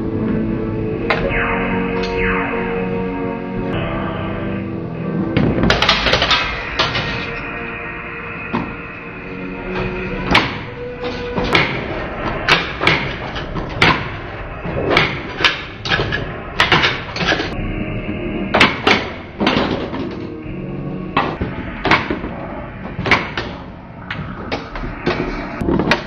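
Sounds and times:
pinball machine clacks and thumps: 5.4 - 7.2, 14.9 - 17.5, 18.6 - 20.3.

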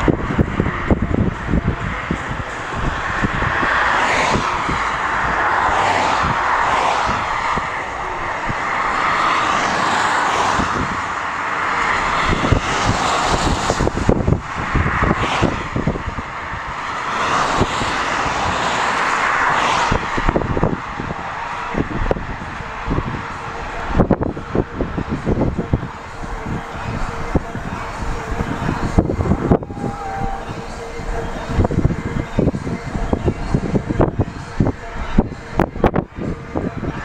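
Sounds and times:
gusty wind rushing: 0.0 - 37.0
wind buffeting microphone: 0.0 - 37.0.

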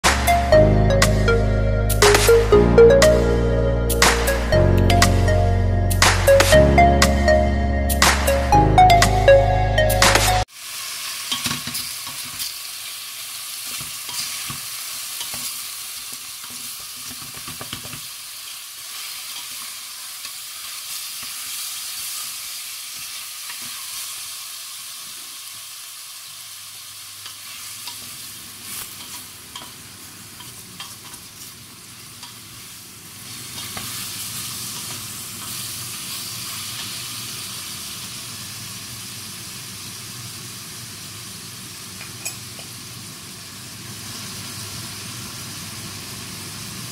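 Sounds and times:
meat sizzling in a pot: 10.5 - 46.9.

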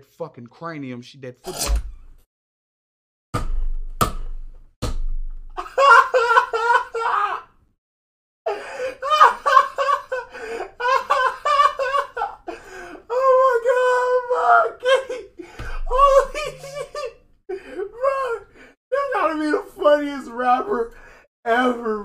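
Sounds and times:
sharp thumps: 3.4 - 5.6
man laughing hard: 5.6 - 7.5, 8.5 - 18.4.

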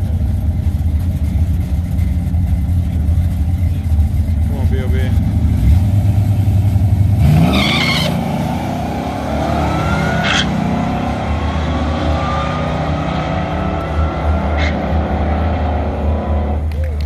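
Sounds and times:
drag racing engines revving: 0.0 - 17.0
rising whine: 7.6 - 16.6.

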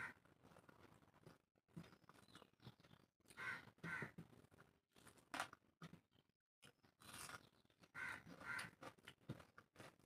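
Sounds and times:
crow cawing: 3.4 - 4.1, 8.0 - 8.8
person chewing and smacking: 6.6 - 10.0.

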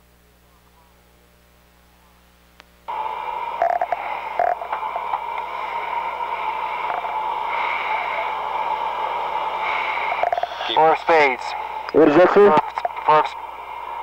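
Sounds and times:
faint mains hum: 0.0 - 14.0
tinny intercom hiss: 0.0 - 14.0.

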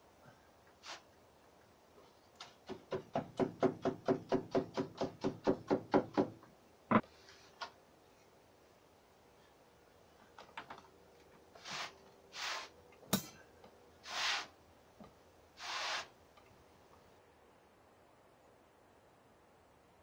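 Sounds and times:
yarn rasping swishes: 14.0 - 14.6, 15.6 - 16.2.

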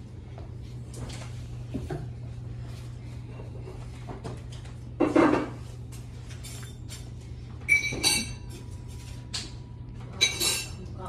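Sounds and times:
tableware clinking: 7.7 - 10.8.

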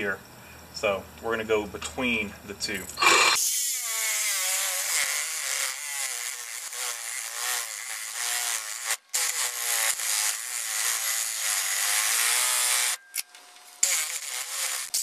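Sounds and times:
reciprocating saw cutting rubber: 3.0 - 13.0, 13.8 - 15.0.

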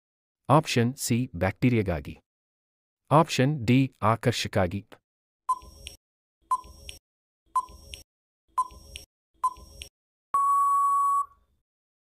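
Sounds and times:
long steady beep: 10.4 - 11.4
short electronic beeps: 10.4 - 11.4.

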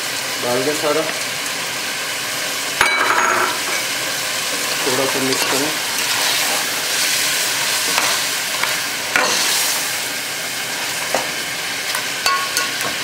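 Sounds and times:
food sizzling in a metal pot: 0.0 - 13.0
metal spoon clinking against pot: 12.2 - 12.9.

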